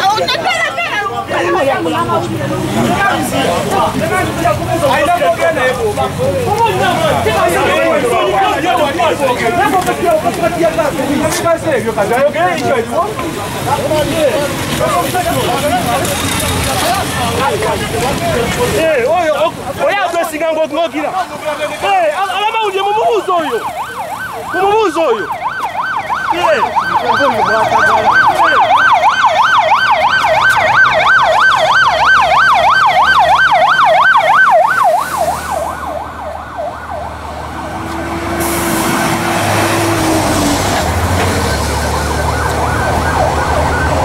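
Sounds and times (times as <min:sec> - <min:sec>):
voices: 0:00.0 - 0:44.0
police siren yelping: 0:22.2 - 0:44.0.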